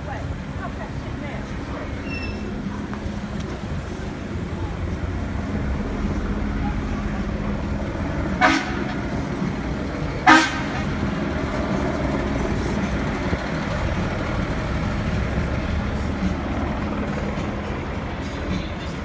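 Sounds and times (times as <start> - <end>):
truck engine rumble: 0.0 - 19.0
vehicle horn toots: 8.4 - 9.0, 10.2 - 10.9.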